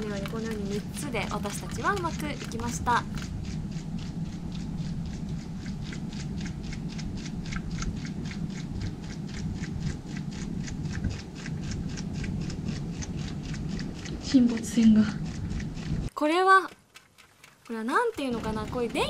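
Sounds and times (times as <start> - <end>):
pop-pop steam boat ticking: 16.3 - 19.0.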